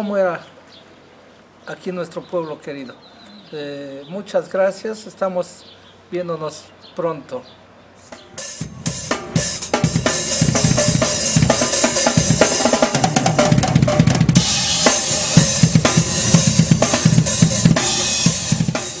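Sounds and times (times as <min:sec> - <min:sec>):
drum kit playing a steady beat: 0:08.0 - 0:19.0.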